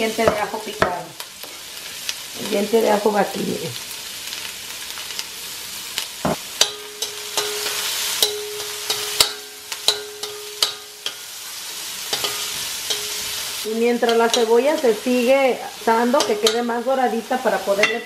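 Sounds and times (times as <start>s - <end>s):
onion sizzling in oil: 0.0s - 18.0s.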